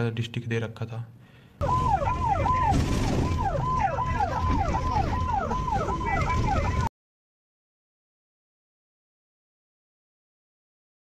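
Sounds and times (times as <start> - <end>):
bus engine rumble: 1.6 - 6.9
electronic siren yelping: 1.6 - 6.9.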